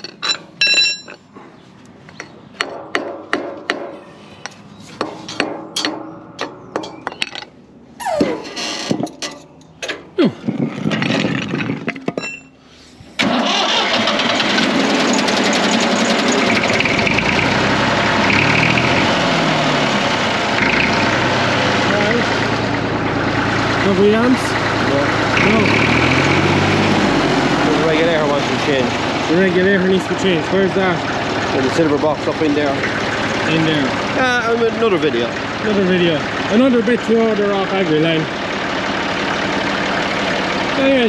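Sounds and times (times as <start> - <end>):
metal clinks of bottle jack: 0.0 - 1.3
squeaks falling in pitch: 8.0 - 9.0
tractor engine running: 13.1 - 41.0.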